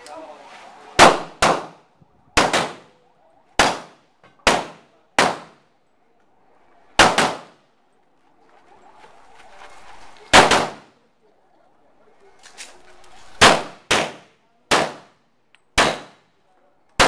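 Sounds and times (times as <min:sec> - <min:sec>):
handgun shots echoing: 0:15.8 - 0:16.2.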